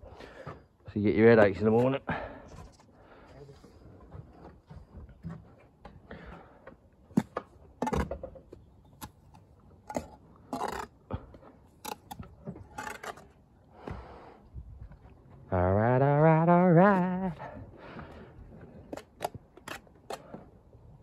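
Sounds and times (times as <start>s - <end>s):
trowel scraping mortar on brick: 8.9s - 11.0s, 11.8s - 13.3s, 18.8s - 20.4s.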